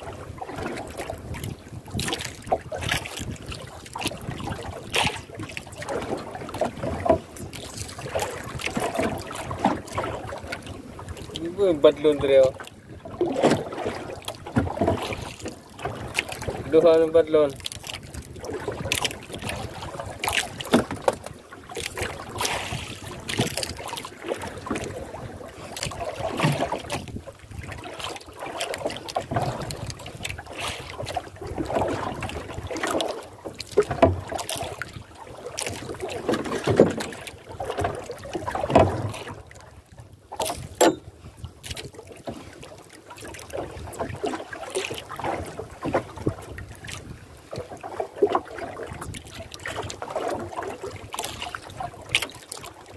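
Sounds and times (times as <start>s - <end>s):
wind on microphone: 0.0s - 17.3s, 21.9s - 28.0s, 29.2s - 32.8s
water lapping against canoe hull: 0.0s - 52.9s.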